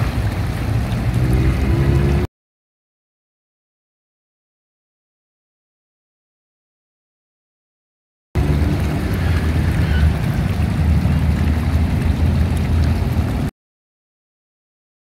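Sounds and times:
fountain jets splashing into water: 0:00.0 - 0:02.3, 0:08.4 - 0:13.5
heavy low rumble: 0:08.4 - 0:13.5.

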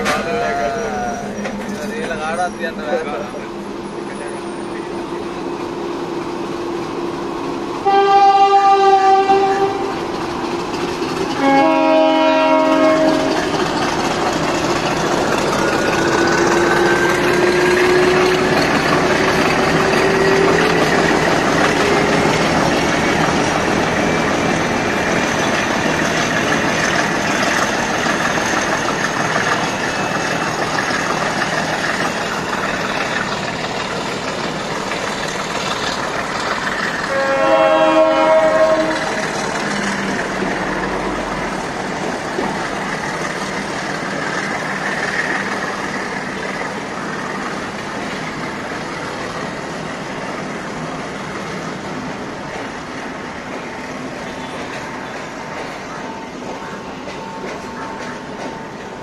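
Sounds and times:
train engine: 0:00.0 - 0:59.0
train rumble and wheel clatter: 0:00.0 - 0:59.0
diesel train horn blasts: 0:07.8 - 0:10.1, 0:11.4 - 0:13.6, 0:16.7 - 0:18.6, 0:37.0 - 0:39.4.

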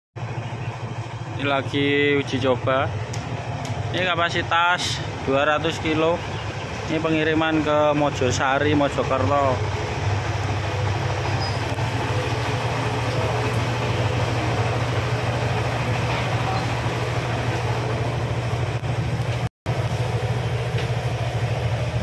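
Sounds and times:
feed mixer motor humming: 0:09.4 - 0:22.0.

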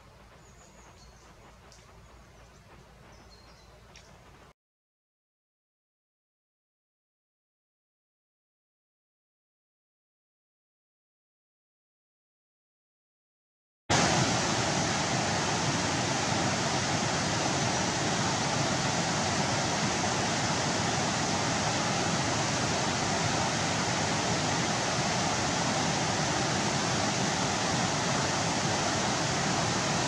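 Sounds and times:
water rushing over a weir: 0:13.9 - 0:30.0.

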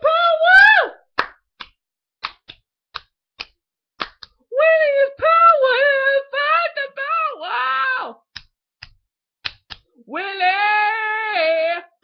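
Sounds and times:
sharp clicks or slaps: 0:01.2 - 0:04.4, 0:08.3 - 0:09.9
high-pitched voice singing: 0:04.6 - 0:08.2.

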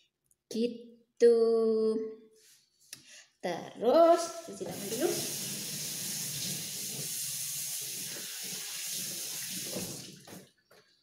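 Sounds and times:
tap water running over hands: 0:04.7 - 0:10.5.

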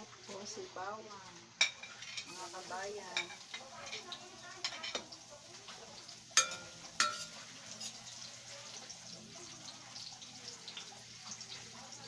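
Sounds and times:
garlic sizzling in oil: 0:00.0 - 0:12.0
ladle clinking on glass pot: 0:06.4 - 0:07.9.

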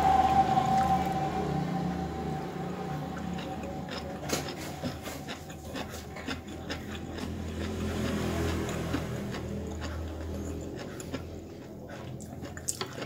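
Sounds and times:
road traffic rumble: 0:00.0 - 0:12.9
chewing and lip smacking: 0:02.9 - 0:13.0.

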